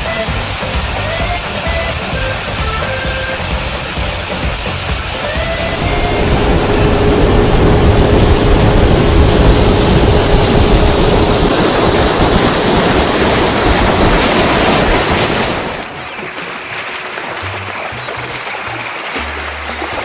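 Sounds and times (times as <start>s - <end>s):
faint engine hum: 0.0s - 14.2s
water rushing past boat hull: 0.0s - 20.0s
wind buffeting microphone: 5.3s - 16.2s.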